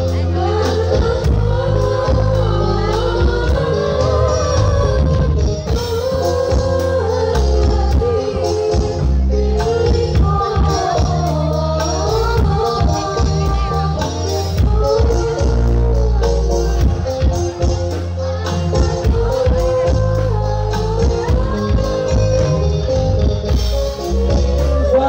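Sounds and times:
devotional singing over loudspeaker: 0.0s - 25.0s
heavy bass notes: 0.0s - 25.0s
regular drum beat: 0.0s - 25.0s.

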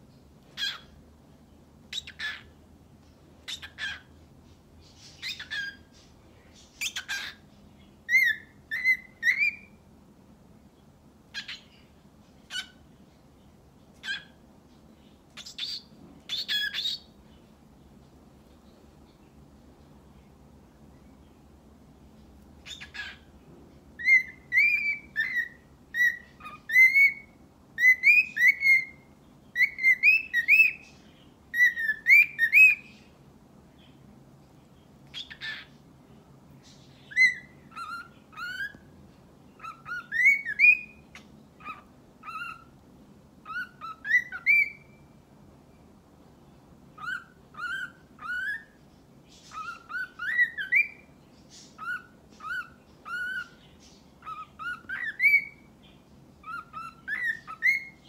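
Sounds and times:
harsh bird chirp: 0.1s - 9.9s, 10.7s - 34.1s, 34.7s - 42.8s, 43.4s - 58.0s
bird whistling a tune: 5.2s - 5.8s, 8.1s - 9.8s, 15.4s - 17.0s, 24.0s - 29.0s, 29.6s - 30.8s, 31.5s - 32.9s, 37.1s - 38.8s, 39.6s - 42.7s, 43.4s - 45.0s, 47.0s - 48.7s, 49.5s - 51.0s, 51.8s - 53.6s, 54.2s - 55.7s, 56.4s - 58.0s.

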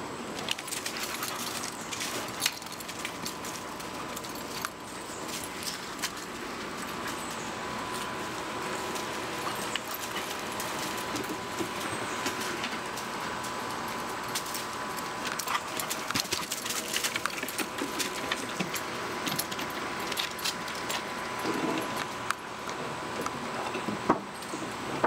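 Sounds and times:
dogs scuffling on dirt: 0.4s - 24.6s
dog collar tags jingling: 0.6s - 7.2s.

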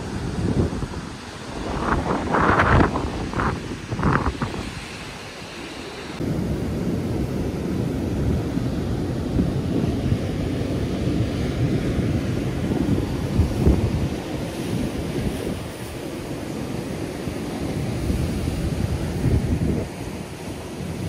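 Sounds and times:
surf breaking on beach: 0.0s - 21.0s
wind buffeting microphone: 0.0s - 21.0s.

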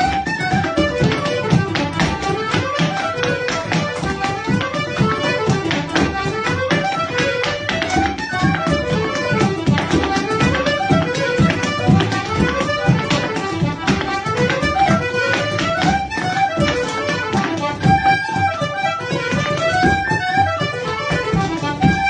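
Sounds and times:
folk dance tune on accordion and flute: 0.0s - 22.0s
frame drum beat: 0.0s - 22.0s
shoes tapping on wooden floor: 0.0s - 22.0s.

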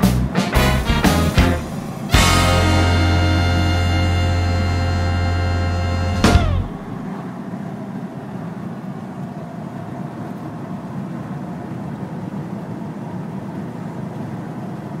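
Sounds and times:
engine and tyre drone: 1.6s - 7.6s.

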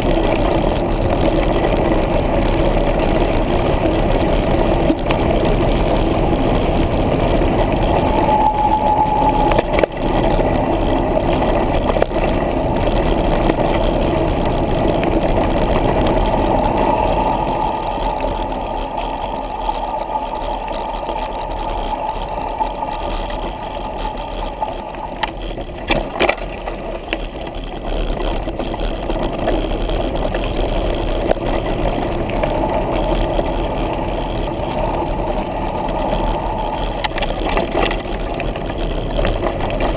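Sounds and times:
wind buffeting microphone: 0.0s - 25.8s
bike tyres on dirt and leaves: 9.6s - 39.9s.

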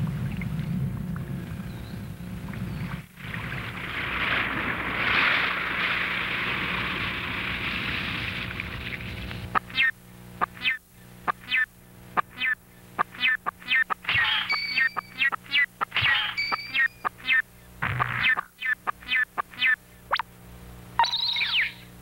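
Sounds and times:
squawking electronic blips: 9.4s - 20.3s, 21.0s - 22.0s.

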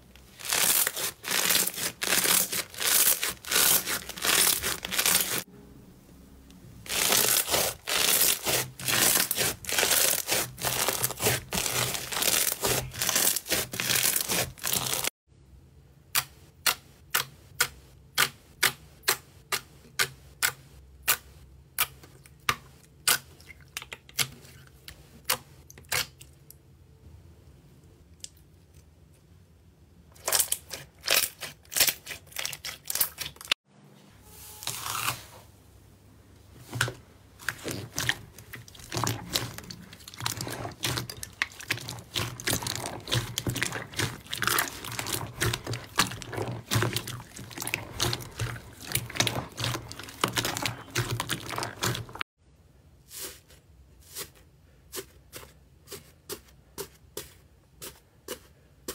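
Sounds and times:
slime squishing and crackling: 0.2s - 5.5s, 6.8s - 15.1s, 30.2s - 33.6s, 36.7s - 52.3s.

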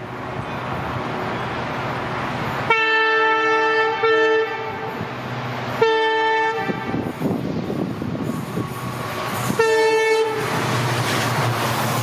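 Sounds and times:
train rumble: 0.0s - 12.0s
locomotive horn blasts: 2.7s - 5.0s, 5.8s - 7.1s, 9.5s - 10.6s.

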